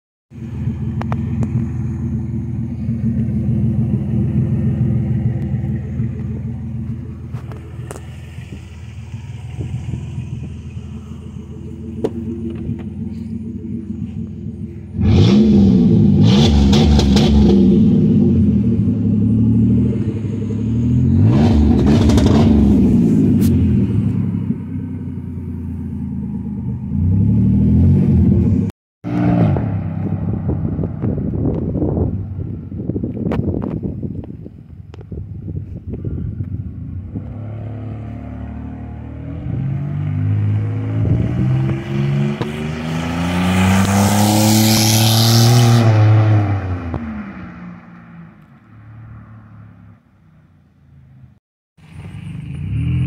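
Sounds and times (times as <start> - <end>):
car engine idling: 0.3 - 16.2, 23.3 - 27.0
car engine revving: 0.4 - 32.0, 37.0 - 50.0.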